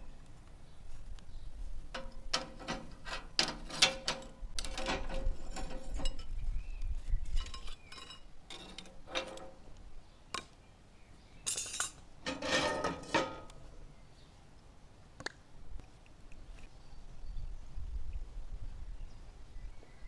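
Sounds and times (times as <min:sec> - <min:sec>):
metal lid rings clanking: 0:01.9 - 0:06.4, 0:07.3 - 0:09.7, 0:11.5 - 0:13.6
frying pan scraping on stovetop: 0:02.0 - 0:06.4, 0:11.7 - 0:13.5.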